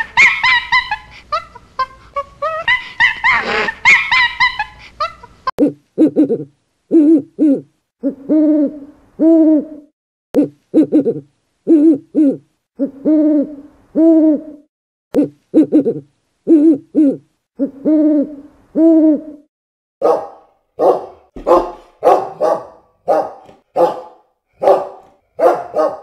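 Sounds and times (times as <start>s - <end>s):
chimpanzee screaming: 2.4s - 4.7s.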